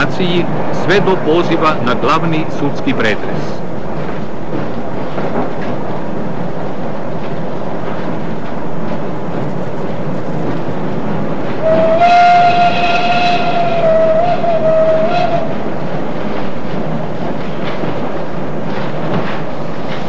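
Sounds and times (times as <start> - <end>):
train carriage rumble and clatter: 0.0 - 20.0
train whistle: 11.6 - 15.6.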